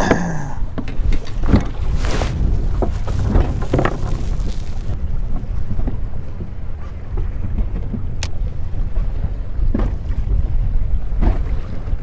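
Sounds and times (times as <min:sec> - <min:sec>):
wind buffeting microphone: 0:00.6 - 0:12.0.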